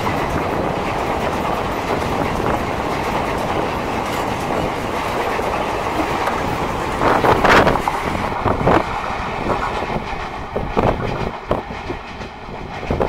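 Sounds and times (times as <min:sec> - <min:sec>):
train wheels knocking over rail joints: 0:00.0 - 0:13.0
wind noise on microphone: 0:00.0 - 0:13.0.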